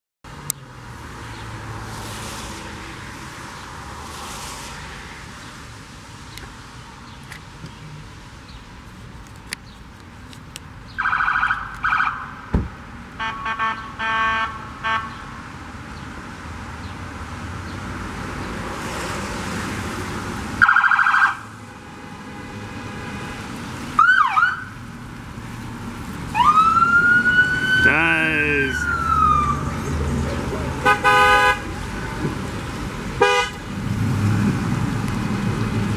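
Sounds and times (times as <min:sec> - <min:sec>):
tyre hiss on wet road: 0:01.9 - 0:02.8, 0:03.8 - 0:06.0
car horns honking: 0:13.2 - 0:15.2, 0:30.8 - 0:31.8, 0:33.2 - 0:33.7
police siren whoops: 0:26.3 - 0:29.7.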